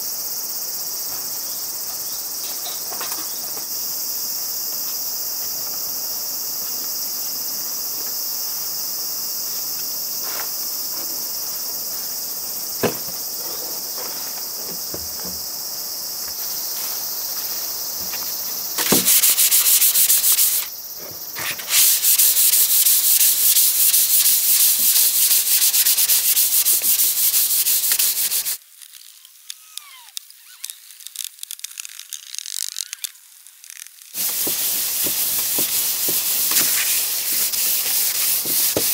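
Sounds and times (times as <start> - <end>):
insect chirring: 0.0 - 38.9
sandpaper scratching on wood: 18.8 - 20.7, 21.4 - 28.6, 34.2 - 38.9
light rubbing of board: 34.2 - 38.9.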